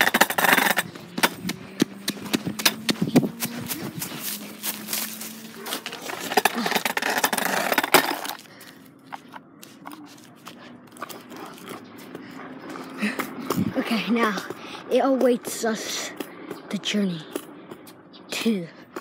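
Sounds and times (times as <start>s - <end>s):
caster board rolling on pavement: 0.0s - 15.6s.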